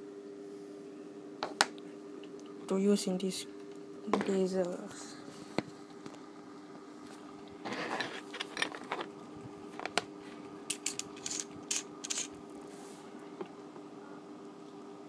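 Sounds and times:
sharp clicks and scrapes: 10.7s - 12.3s.

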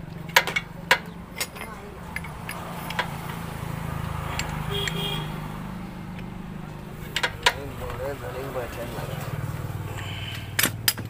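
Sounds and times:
sharp metallic clicks: 0.0s - 5.2s
metal tools clinking: 0.1s - 3.4s, 7.0s - 8.0s.

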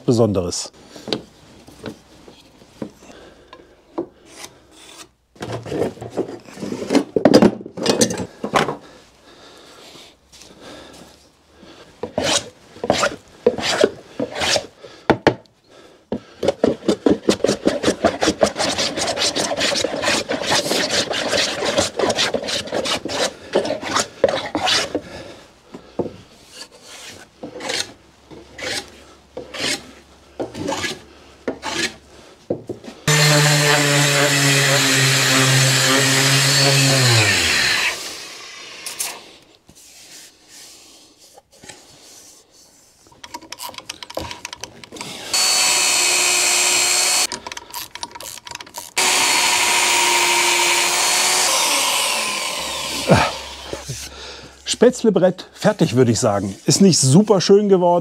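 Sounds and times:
hand plane shaving wood: 12.0s - 14.7s, 16.4s - 25.0s, 26.5s - 32.0s, 33.1s - 38.0s, 49.0s - 54.1s
power tool motor running: 33.1s - 38.5s, 45.1s - 47.3s, 49.0s - 53.8s.

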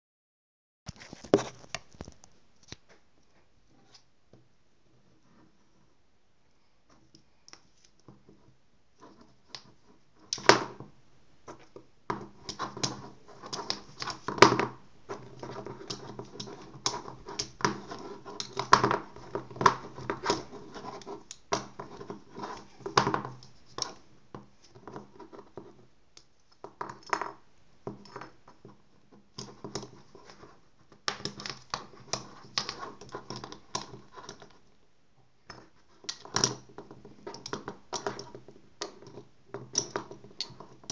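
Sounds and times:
pens clacking and tapping on table: 11.5s - 34.6s, 35.5s - 40.9s.

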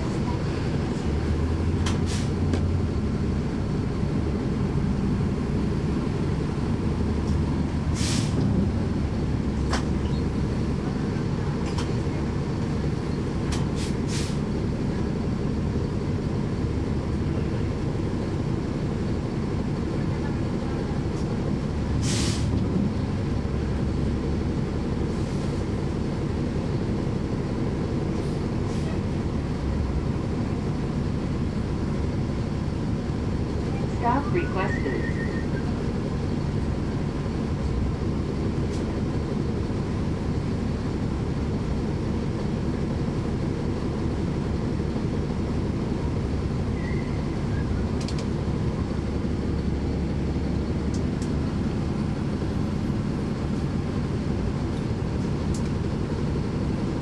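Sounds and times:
bus diesel engine running: 0.0s - 57.0s
road noise: 0.0s - 57.0s
short hisses: 8.0s - 8.4s, 22.0s - 22.5s.

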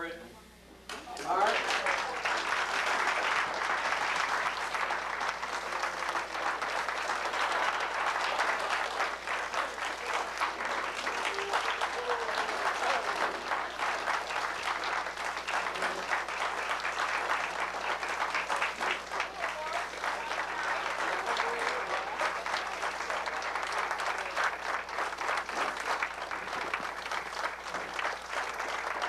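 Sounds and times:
audience clapping: 0.9s - 29.0s
faint voices: 4.6s - 16.8s, 18.3s - 25.9s.

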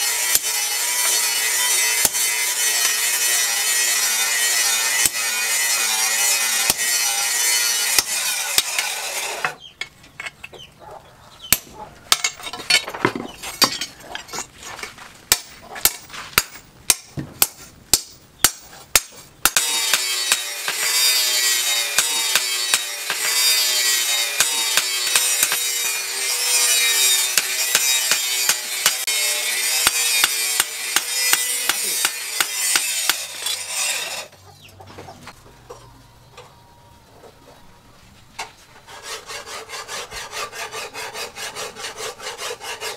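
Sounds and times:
file rasping on steel: 19.6s - 34.3s, 38.8s - 42.9s.

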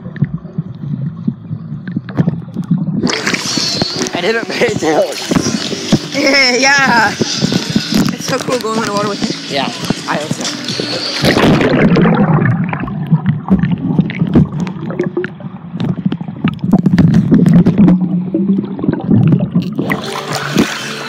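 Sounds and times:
muffled underwater bubbling: 0.0s - 21.0s.

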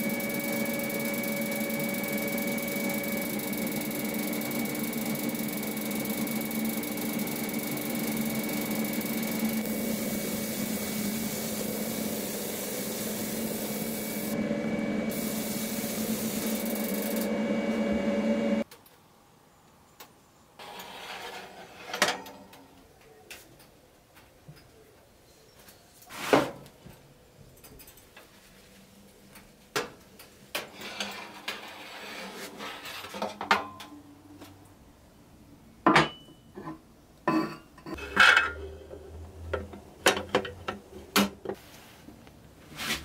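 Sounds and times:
motor hum: 0.0s - 18.6s
spray gun air hiss: 9.3s - 14.4s, 15.1s - 17.3s.

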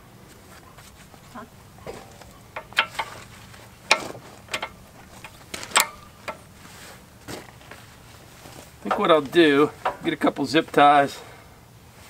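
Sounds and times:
sharp metallic clicks of couplers: 1.8s - 6.5s, 8.8s - 10.8s.

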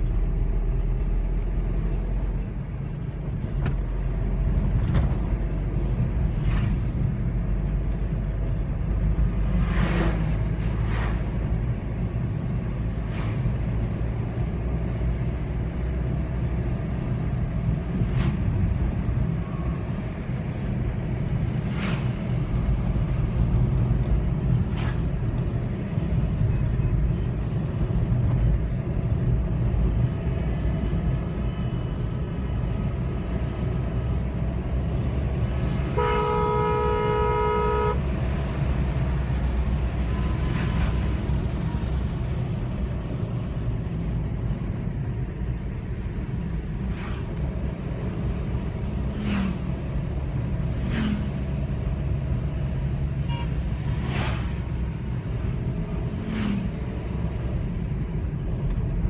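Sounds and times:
car engine and tyre rumble: 0.0s - 59.0s
car horn: 35.8s - 38.2s, 53.2s - 53.7s.

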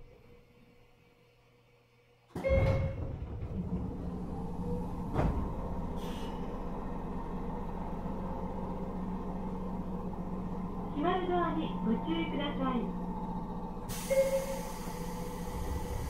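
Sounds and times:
train machinery hum: 0.0s - 16.0s
air hiss: 13.9s - 16.0s.

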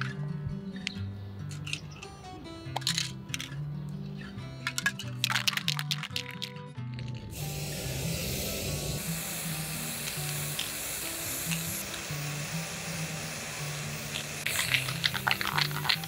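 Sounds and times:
background music: 0.0s - 16.0s
spray paint can hissing: 7.2s - 16.0s
sharp ticks: 10.0s - 12.0s.

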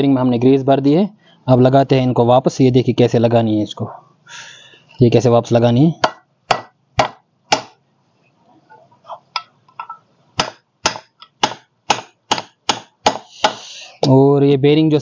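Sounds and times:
hammer tapping metal: 6.0s - 7.8s, 9.3s - 13.7s.

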